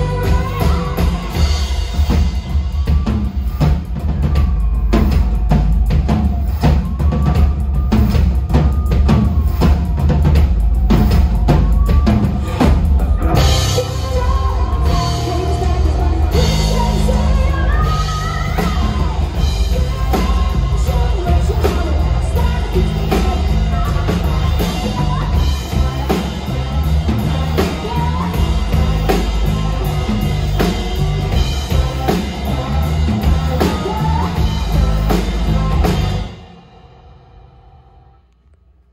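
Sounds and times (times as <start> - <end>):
woman singing: 0.0 - 3.0, 11.8 - 36.4
rock band playing: 0.0 - 37.5.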